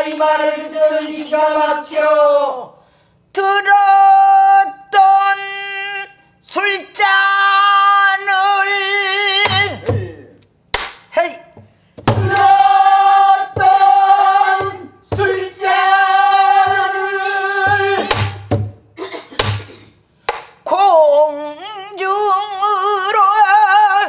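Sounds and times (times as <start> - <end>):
barrel drum strokes: 12.0 - 15.9.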